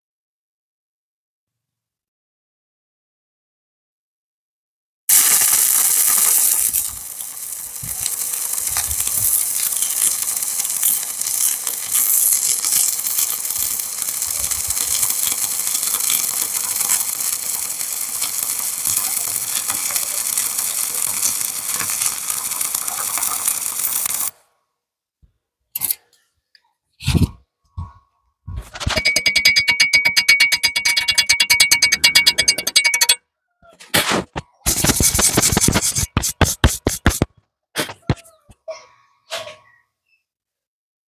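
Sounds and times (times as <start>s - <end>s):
welding arc hissing crackle: 5.1s - 24.4s, 34.7s - 38.1s.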